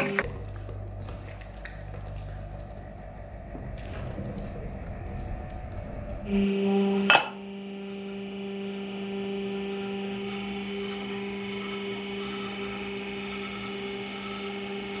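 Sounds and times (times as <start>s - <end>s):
hydraulic pump motor humming: 0.0s - 0.3s, 6.3s - 15.0s.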